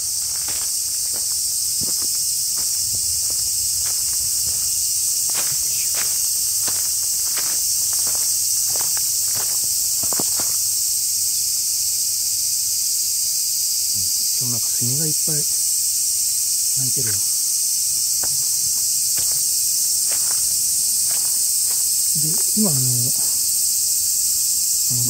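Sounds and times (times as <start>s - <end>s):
cicadas buzzing: 0.0s - 25.0s
voice: 14.0s - 15.5s, 16.8s - 17.3s, 22.2s - 23.4s.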